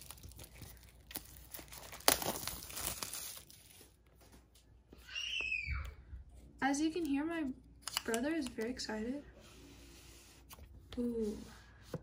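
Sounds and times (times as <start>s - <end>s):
sharp crackle: 0.0s - 3.6s
paper seal strip crinkling: 0.0s - 4.0s.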